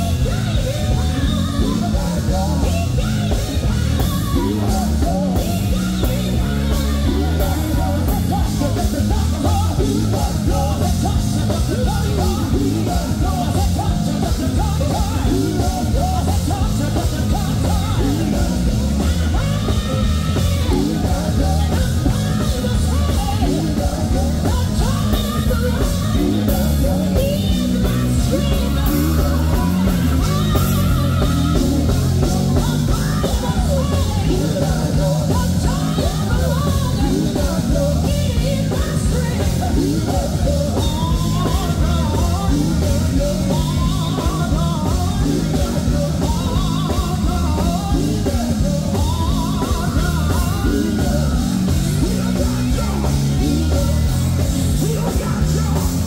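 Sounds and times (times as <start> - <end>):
band bass and percussion: 0.0 - 56.0
gospel choir singing: 0.0 - 56.0.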